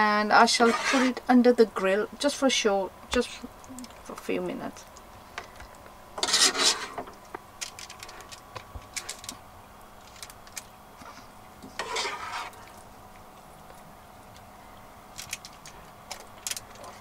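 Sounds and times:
spoon scraping steel pot: 0:00.6 - 0:01.2, 0:06.2 - 0:07.0, 0:11.7 - 0:12.6.

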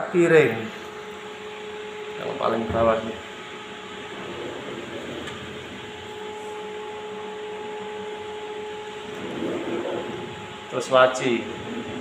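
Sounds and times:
steady whirring hum: 0:00.0 - 0:12.0
wire drawer sliding on runners: 0:04.1 - 0:06.0.

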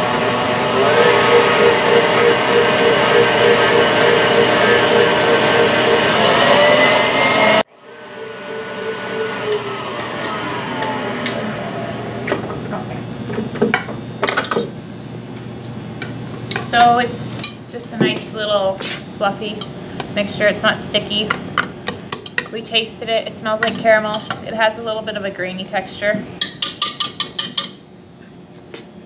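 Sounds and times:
stand mixer running: 0:00.0 - 0:12.5
mixer spinning down whine: 0:00.0 - 0:13.5.

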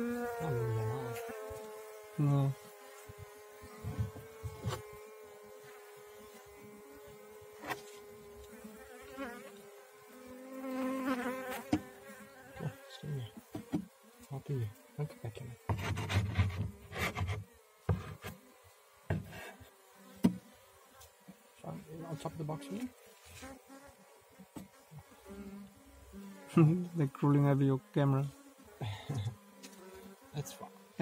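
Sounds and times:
bees buzzing: 0:00.0 - 0:31.0
single bee buzzing loudly: 0:00.0 - 0:31.0
knocks and rubs on wooden box: 0:03.1 - 0:05.0, 0:13.4 - 0:13.9, 0:15.7 - 0:18.4, 0:19.1 - 0:19.4, 0:20.2 - 0:20.4.

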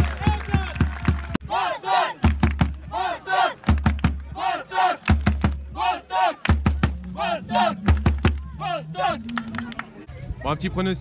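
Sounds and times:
crowd chanting: 0:01.4 - 0:10.1
bass drum beats: 0:02.2 - 0:02.8, 0:03.7 - 0:04.3, 0:05.1 - 0:05.8, 0:06.5 - 0:09.6
group shouting: 0:05.8 - 0:06.4, 0:07.0 - 0:09.3.

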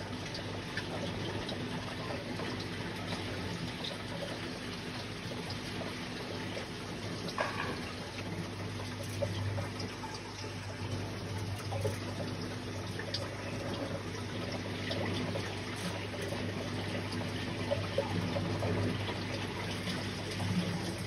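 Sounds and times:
aquarium filter water splashing: 0:00.0 - 0:21.0
low steady hum: 0:00.0 - 0:21.0.

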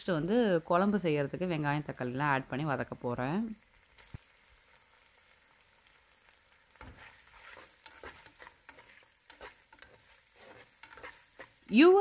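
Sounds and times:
onions sizzling in oil: 0:00.0 - 0:12.0
spatula scraping metal pan: 0:06.8 - 0:12.0.

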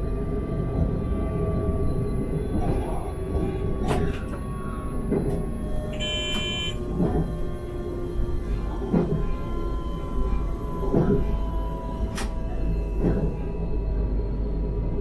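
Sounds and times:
train rolling rumble: 0:00.0 - 0:15.0
short electronic beep: 0:05.9 - 0:06.8.

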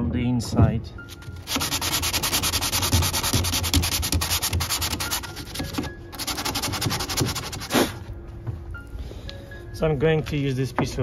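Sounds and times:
sandpaper rasping on wood: 0:01.4 - 0:05.6, 0:06.2 - 0:08.0.

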